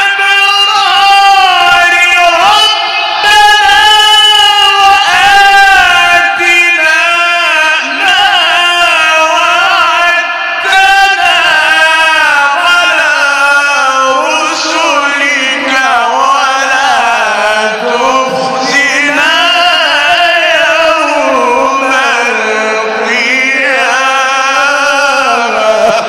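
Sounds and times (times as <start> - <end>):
man reciting melodically: 0.0 - 26.0.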